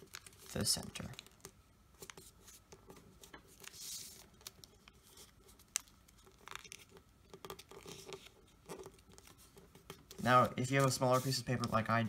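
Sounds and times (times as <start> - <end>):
paper rustling and crinkling: 0.0 - 12.0
paper sliding hiss: 10.3 - 12.0.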